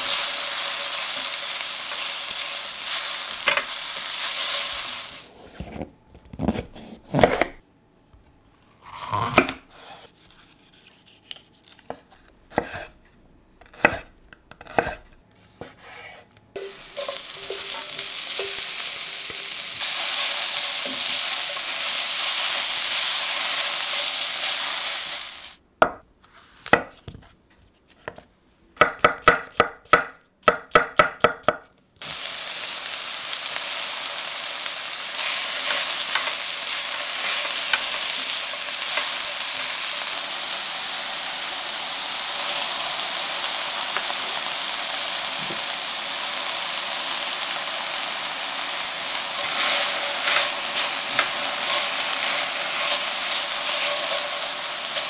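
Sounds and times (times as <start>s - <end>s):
vegetables sizzling in pan: 0.0s - 5.4s, 16.6s - 25.6s, 32.0s - 55.0s.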